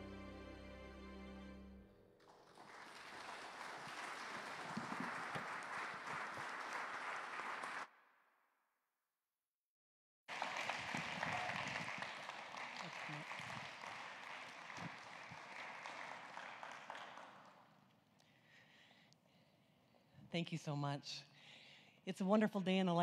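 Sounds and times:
congregation applauding: 0:02.2 - 0:08.0, 0:10.3 - 0:17.9.

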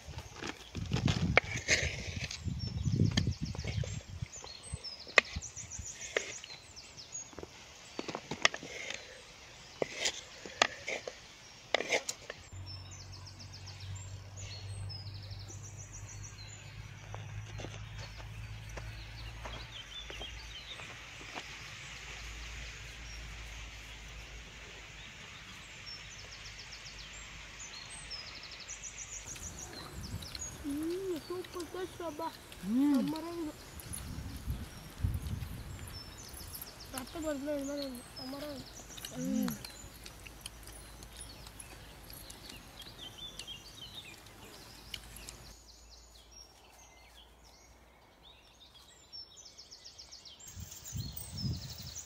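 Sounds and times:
small birds chirping: 0:00.0 - 0:52.0
wooden ladle scraping clay pot: 0:00.2 - 0:02.5, 0:08.3 - 0:12.4
outdoor background hiss: 0:01.6 - 0:52.0.

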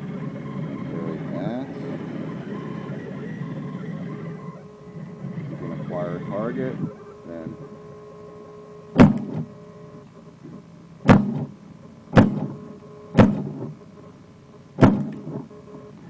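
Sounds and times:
faint steady hum: 0:00.0 - 0:16.0
model tank gun bangs: 0:09.0 - 0:09.5, 0:11.1 - 0:12.6, 0:13.2 - 0:13.7, 0:14.8 - 0:15.4.

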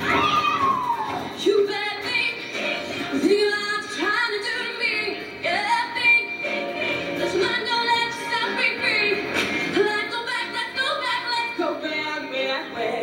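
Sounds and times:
music: 0:00.0 - 0:13.0
woman singing into a microphone: 0:01.4 - 0:13.0.

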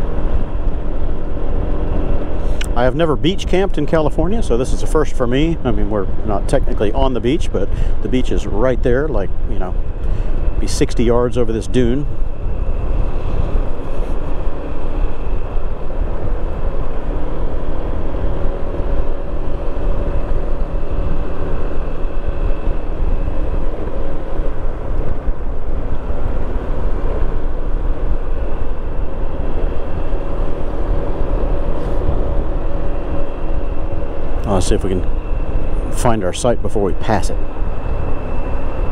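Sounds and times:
wind rumble on microphone: 0:00.0 - 0:38.9
scooter engine droning: 0:11.7 - 0:36.4.

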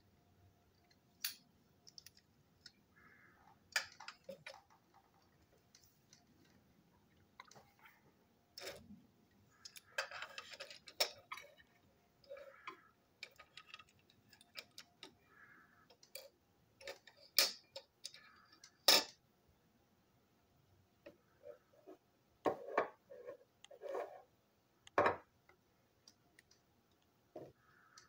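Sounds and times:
plastic toy parts clicking: 0:00.8 - 0:02.8, 0:03.7 - 0:05.3, 0:09.6 - 0:11.6, 0:12.2 - 0:15.2, 0:15.8 - 0:19.2.

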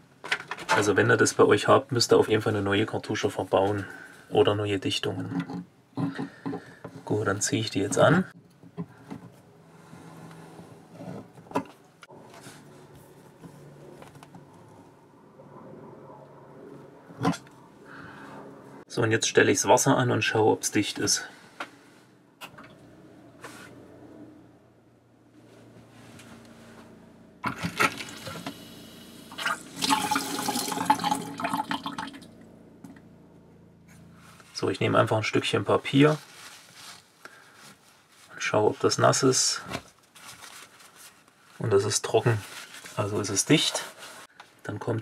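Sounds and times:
low steady hum: 0:00.0 - 0:39.3
water running from a tap: 0:29.0 - 0:32.2.

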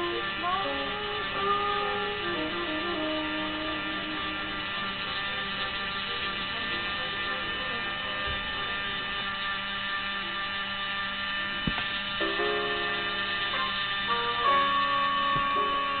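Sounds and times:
rotary engraving tool whining: 0:00.0 - 0:16.0.

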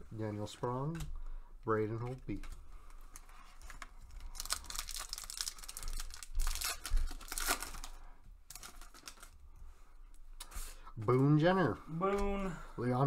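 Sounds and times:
foil wrapper tearing and crinkling: 0:03.6 - 0:09.4.

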